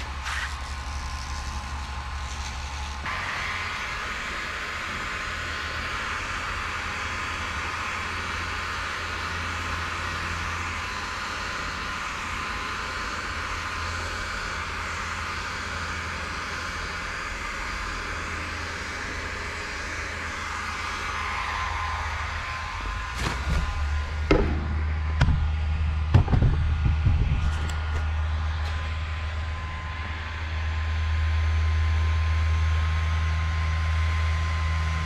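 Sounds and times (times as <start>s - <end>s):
heat gun blowing air: 0.0s - 24.9s
low hum: 0.0s - 35.0s.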